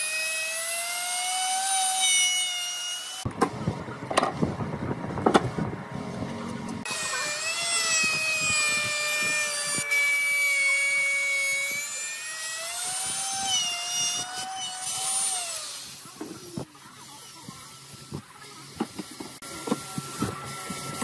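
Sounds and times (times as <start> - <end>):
electric router whining: 0.0 - 3.7, 6.2 - 16.5, 19.4 - 21.0.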